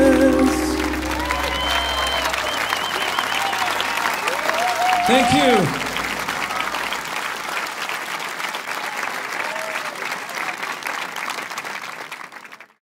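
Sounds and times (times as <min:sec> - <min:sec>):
audience applauding: 0:00.0 - 0:12.8
faint cheers: 0:00.7 - 0:07.2, 0:08.8 - 0:10.7.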